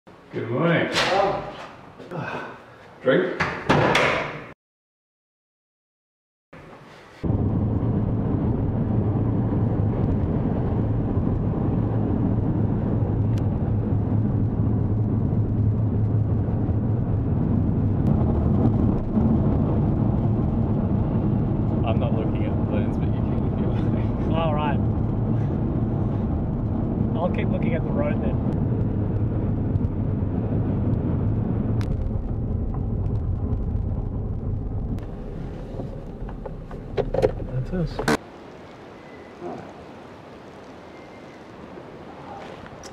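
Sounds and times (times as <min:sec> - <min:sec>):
car engine and tyre rumble: 0:06.6 - 0:39.1.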